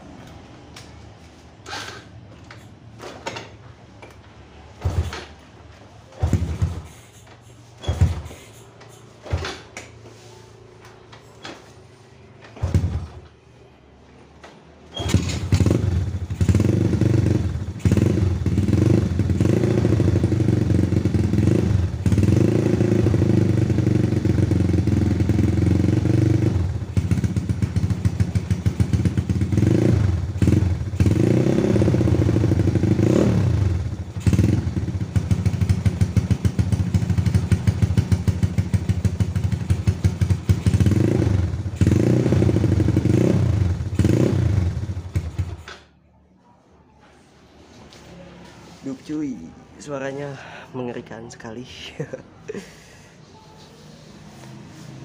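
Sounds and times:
motorcycle engine idling: 15.4 - 31.2, 33.6 - 43.0.

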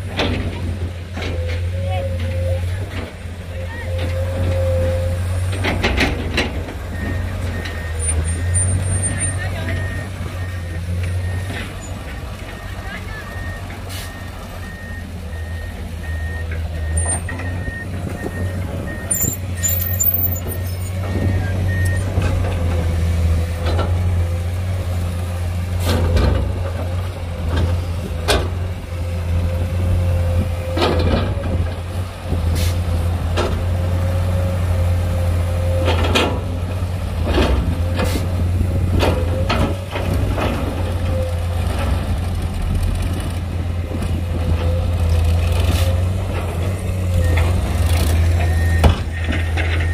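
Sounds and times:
diesel engines running: 0.0 - 49.9
steady engine whine: 0.0 - 49.9
reversing alarm beeping: 6.9 - 22.2, 48.4 - 49.9.

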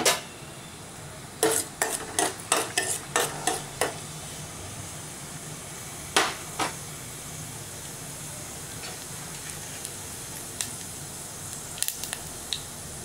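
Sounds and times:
faint sizzle: 0.1 - 13.0
mustard seeds popping in oil: 9.0 - 12.8.

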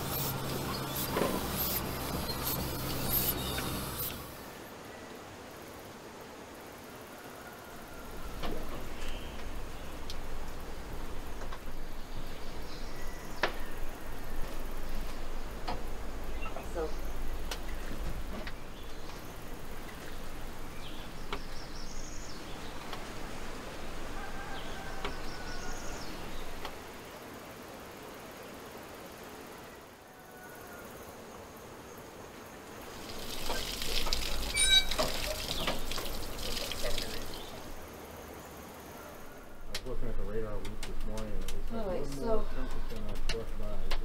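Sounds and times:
steam and water spitting: 0.0 - 4.4, 32.8 - 37.8
birds calling: 0.0 - 4.6, 32.9 - 37.9
insects calling: 0.0 - 44.0.

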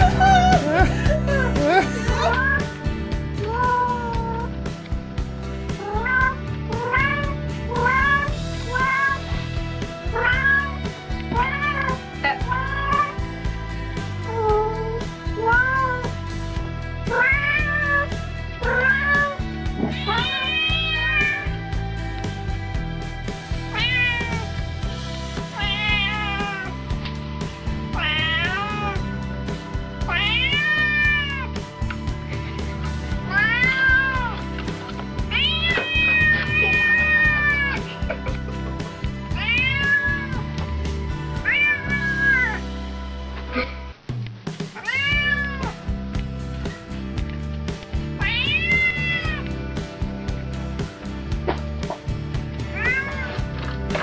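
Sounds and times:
background music with steady beat: 0.0 - 54.0
cat meowing: 2.3 - 2.7, 5.8 - 9.2, 10.1 - 10.8, 11.4 - 13.2, 17.1 - 21.5, 23.7 - 24.5, 25.6 - 26.8, 28.0 - 29.0, 30.1 - 31.5, 33.3 - 34.4, 35.3 - 37.8, 39.4 - 40.5, 41.4 - 42.6, 44.8 - 45.8, 48.2 - 49.5, 52.7 - 53.4.

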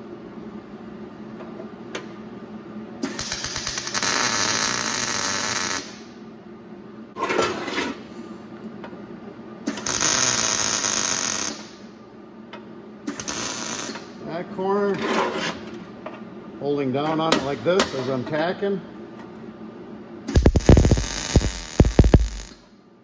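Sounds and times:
welding arc crackling: 3.2 - 6.0, 9.8 - 11.6, 13.2 - 14.0, 20.3 - 22.6.

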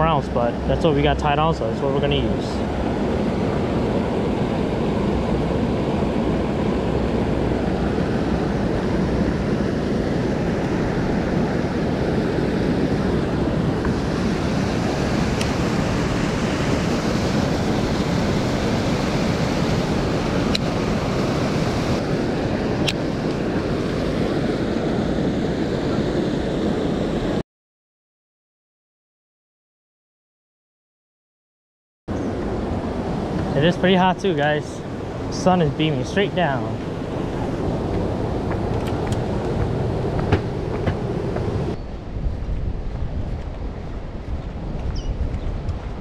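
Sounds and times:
water rushing over a spillway: 13.9 - 22.2.

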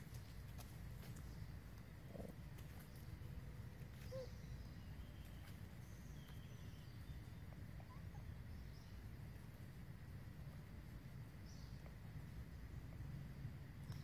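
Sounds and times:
steady low rumble: 0.0 - 14.0
distant bird calls: 1.2 - 9.1.

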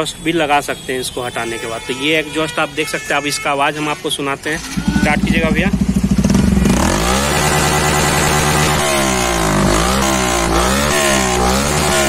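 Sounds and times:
motorcycle engine revving: 4.6 - 12.0.

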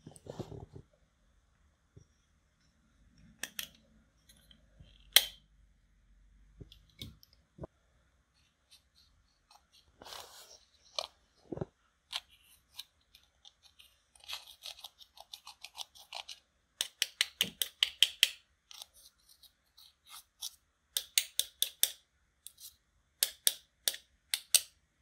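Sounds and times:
metal tool scraping eyeshadow: 12.1 - 16.4.

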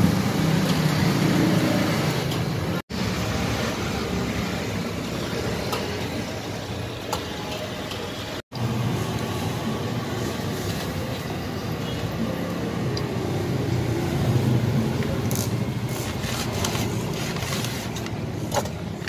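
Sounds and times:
street traffic rumble: 0.0 - 19.0
paper rustling: 15.9 - 18.6.

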